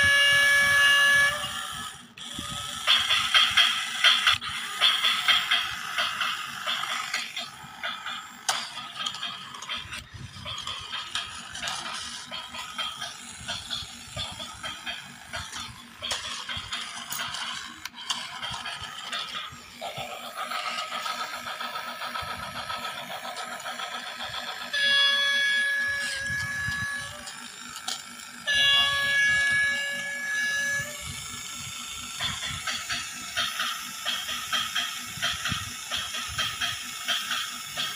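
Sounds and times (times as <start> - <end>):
toy train horn blasts: 0.0 - 19.4, 23.8 - 34.8.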